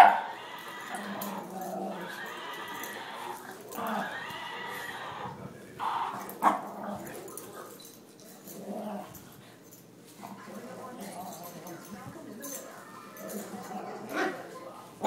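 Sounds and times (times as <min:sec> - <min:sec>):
dog whining growls: 0:00.0 - 0:07.4.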